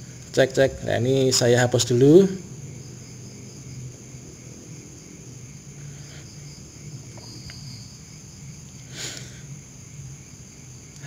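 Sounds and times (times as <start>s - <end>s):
low hum: 0.0s - 8.7s
high-pitched steady whine: 0.0s - 11.0s.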